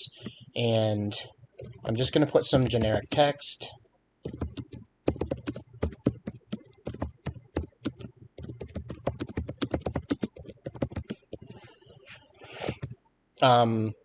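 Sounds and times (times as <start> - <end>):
typing on computer keyboard: 2.6 - 3.2, 4.2 - 11.6, 12.6 - 13.0.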